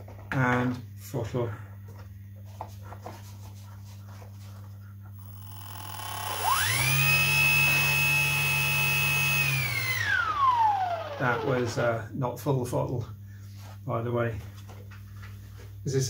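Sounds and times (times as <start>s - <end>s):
electric motor whine: 5.2s - 12.0s.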